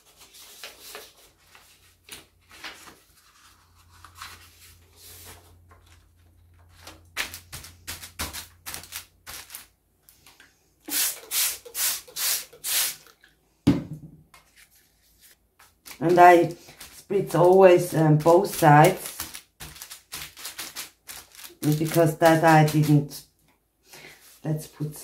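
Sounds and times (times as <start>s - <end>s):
paper rustling and sliding: 0.0s - 10.4s, 14.4s - 17.6s
spray bottle spritzes: 10.9s - 13.1s.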